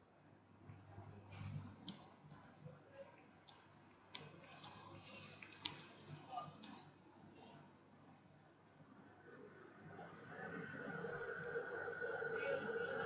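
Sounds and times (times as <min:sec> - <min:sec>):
computer keyboard keystrokes: 0:01.3 - 0:02.6, 0:03.4 - 0:06.0, 0:06.6 - 0:06.9.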